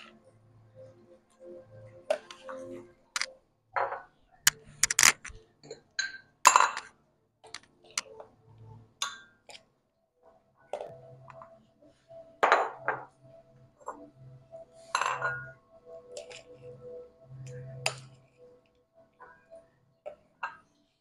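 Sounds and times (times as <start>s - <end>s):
spoon clinking against bowls: 14.9s - 15.6s.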